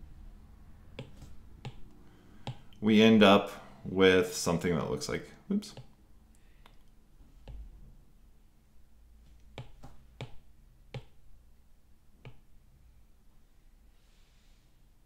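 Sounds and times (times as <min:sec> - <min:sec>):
stylus tapping on glass screen: 0:01.0 - 0:02.7, 0:09.6 - 0:11.2.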